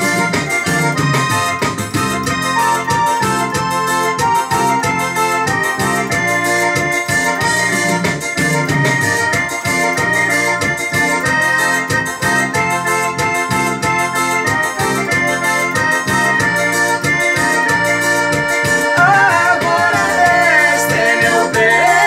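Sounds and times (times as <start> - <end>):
keyboard organ-like melody with beat: 0.0 - 22.0
woman singing: 19.0 - 22.0.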